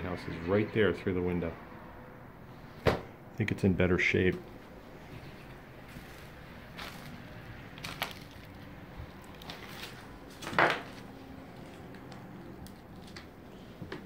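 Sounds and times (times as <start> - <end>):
debris crunching underfoot: 5.8 - 13.3.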